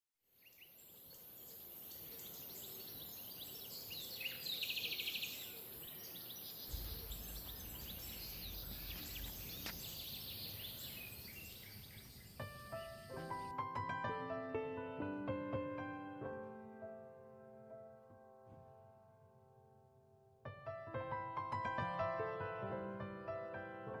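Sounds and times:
bird trill: 0:00.4 - 0:13.5
birds chirping and calling: 0:00.6 - 0:13.5
low rumble: 0:06.7 - 0:10.7.

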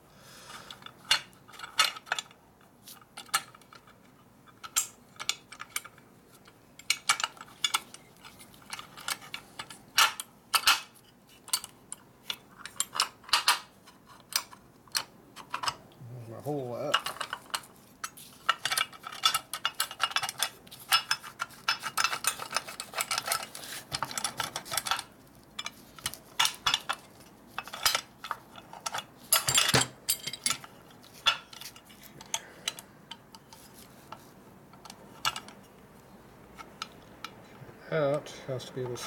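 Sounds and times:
metal parts clinking and rattling: 0:00.5 - 0:15.8, 0:16.8 - 0:35.7.

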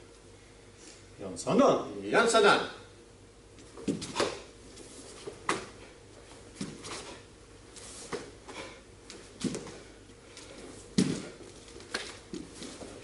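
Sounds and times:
bare feet on wooden floor: 0:03.6 - 0:13.0.

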